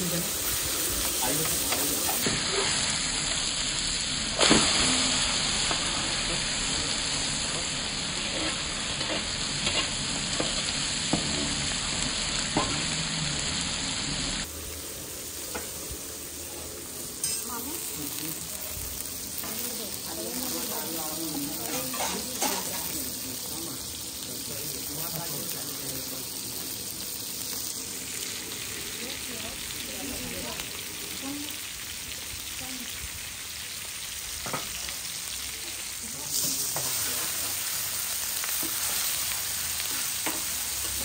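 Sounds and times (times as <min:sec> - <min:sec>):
fish sizzling in hot oil: 0:00.0 - 0:41.0
metal spatula scraping pan: 0:21.6 - 0:22.8.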